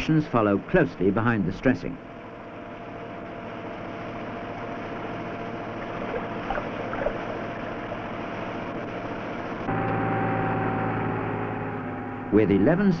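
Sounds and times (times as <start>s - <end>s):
pump hissing and humming: 0.0s - 11.0s.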